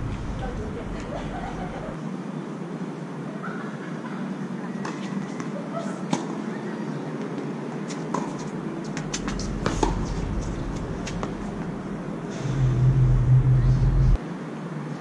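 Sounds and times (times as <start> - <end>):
low traffic rumble: 0.0 - 15.0
tennis ball bouncing: 7.9 - 11.7
racket striking tennis ball: 8.1 - 11.7.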